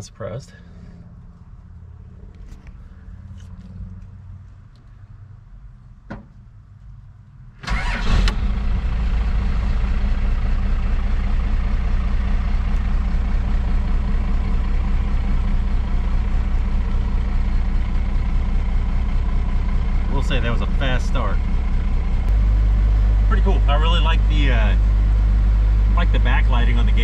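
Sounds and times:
ignition click: 7.6s - 8.4s
diesel engine cranking and starting: 7.6s - 27.0s
diesel engine idling: 7.6s - 27.0s.

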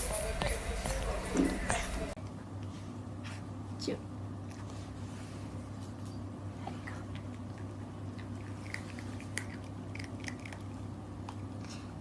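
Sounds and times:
puppy chewing crunchy treat: 6.8s - 12.0s.

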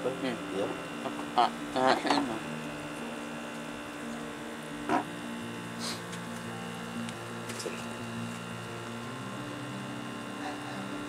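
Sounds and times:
motor humming: 0.0s - 11.0s.

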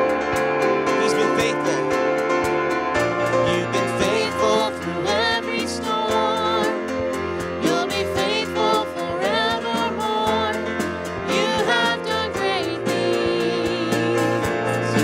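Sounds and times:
stage keyboard: 0.0s - 15.0s
man and woman singing: 3.5s - 15.0s.

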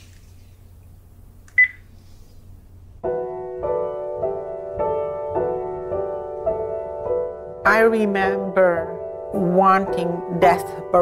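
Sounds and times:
slow piano music: 2.9s - 11.0s.

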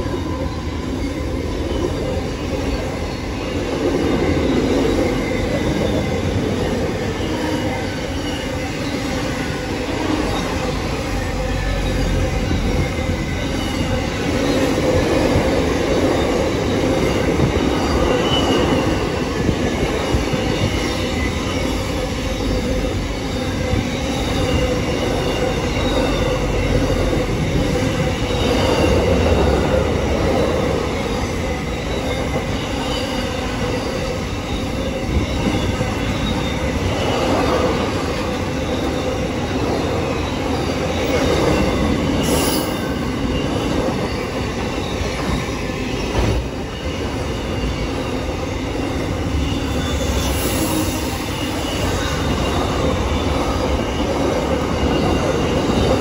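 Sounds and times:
train wagons rolling on rails: 0.0s - 56.0s
faint wheel squeal: 15.8s - 56.0s.

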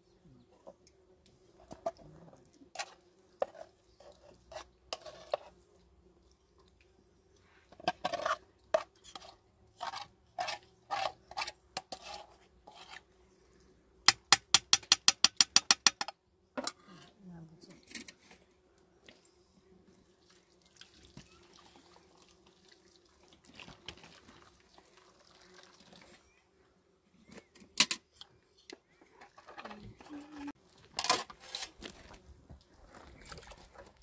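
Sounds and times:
metal spoon scraping a pan: 2.8s - 5.5s, 7.8s - 13.0s, 29.2s - 31.8s.

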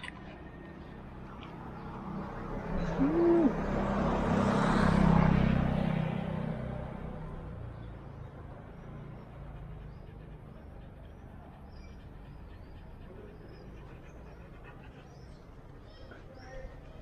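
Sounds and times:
street traffic rumble: 0.0s - 17.0s
small birds chirping: 7.6s - 17.0s.

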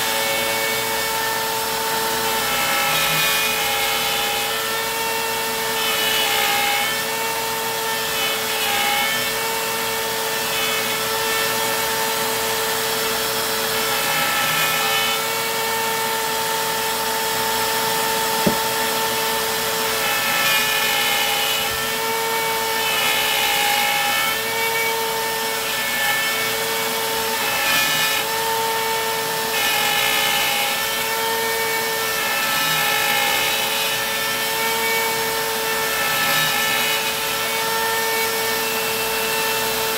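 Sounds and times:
router high whine: 0.0s - 25.6s
bit cutting rasp: 17.5s - 39.8s.

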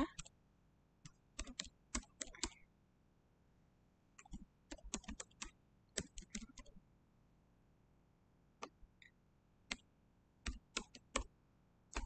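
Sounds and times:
computer keyboard typing: 1.0s - 2.6s, 4.2s - 6.8s, 9.7s - 11.3s.

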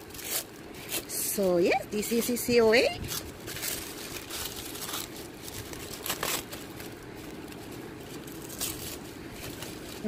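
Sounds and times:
paper rustling: 3.0s - 10.0s.

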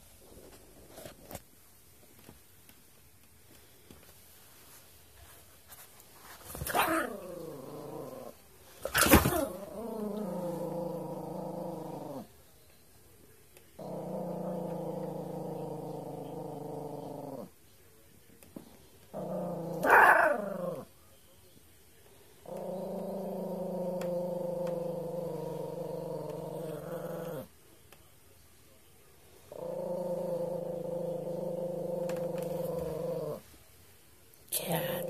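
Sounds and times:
small dog growling: 6.5s - 12.3s, 13.8s - 17.5s, 19.0s - 20.9s, 22.4s - 27.5s, 29.4s - 33.5s
dog snarling: 13.8s - 17.5s, 19.1s - 20.9s, 22.4s - 27.5s, 29.5s - 33.4s.

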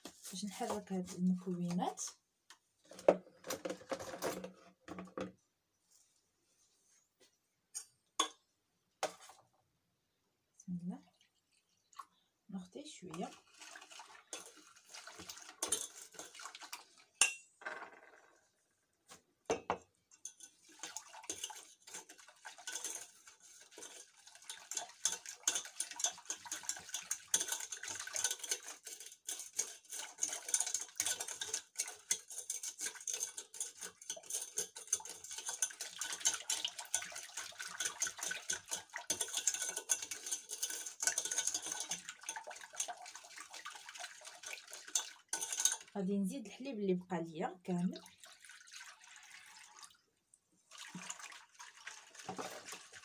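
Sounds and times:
wire whisk clinking in metal bowl: 14.3s - 14.7s, 15.6s - 16.5s, 17.2s - 17.4s, 19.5s - 45.9s.

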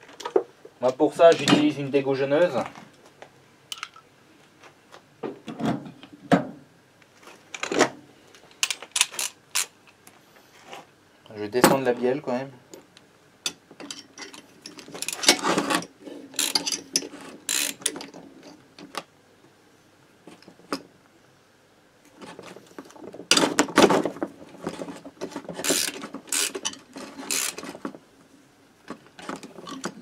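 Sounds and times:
ratchet wrench clicking: 16.4s - 16.8s, 17.5s - 17.9s, 25.6s - 27.6s.

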